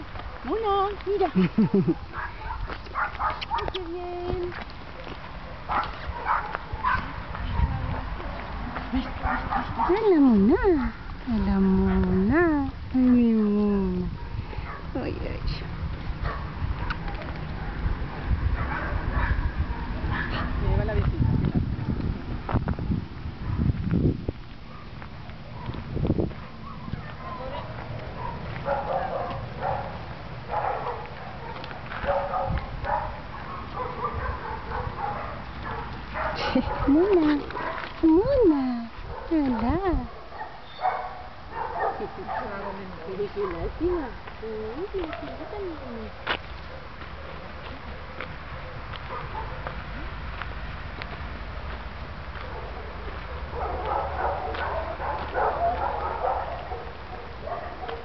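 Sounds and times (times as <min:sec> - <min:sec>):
wind rumble on microphone: 0:00.0 - 0:58.0
small dog barking: 0:02.1 - 0:03.8, 0:05.6 - 0:08.0, 0:09.2 - 0:10.0, 0:16.2 - 0:17.0, 0:18.6 - 0:20.6, 0:26.4 - 0:37.9, 0:40.1 - 0:42.8, 0:48.6 - 0:49.8, 0:52.4 - 0:58.0
dogs whimpering and yipping: 0:26.4 - 0:29.9, 0:40.4 - 0:42.6.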